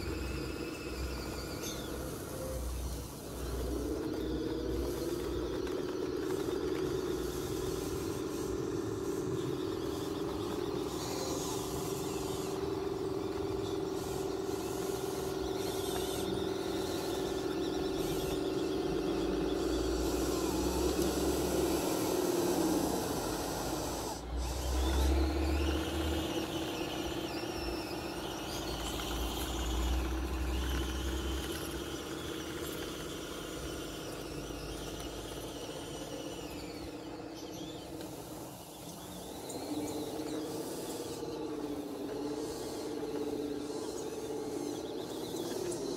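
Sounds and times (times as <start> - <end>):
toy bulldozer motors whining: 0.0 - 45.9.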